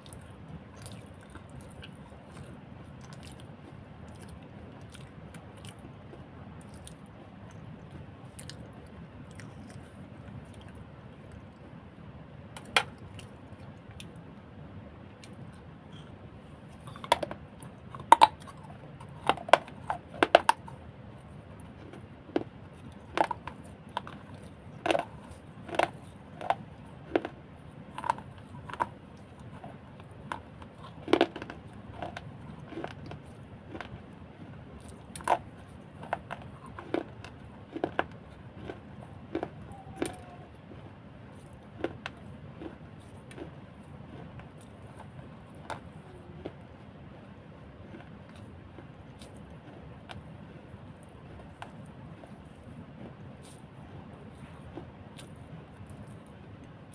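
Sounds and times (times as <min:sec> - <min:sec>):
crunching clay cup: 0:16.7 - 0:46.6.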